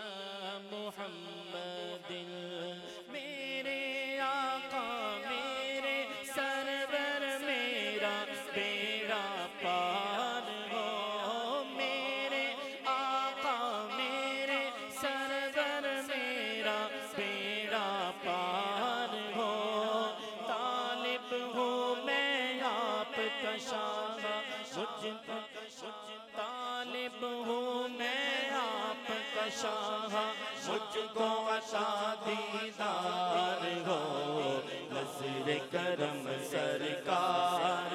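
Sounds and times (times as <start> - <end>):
man singing devotional song: 0.0 - 37.9.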